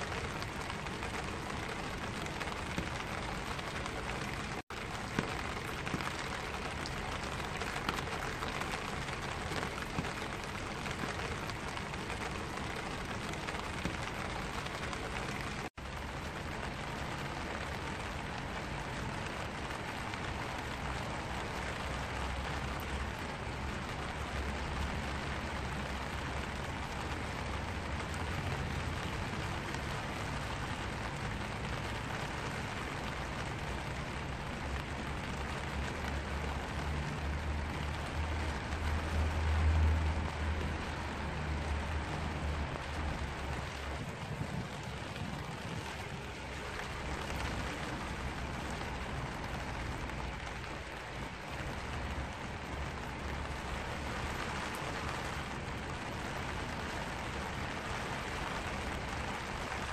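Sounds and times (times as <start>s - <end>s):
rain on umbrella: 0.0s - 59.9s.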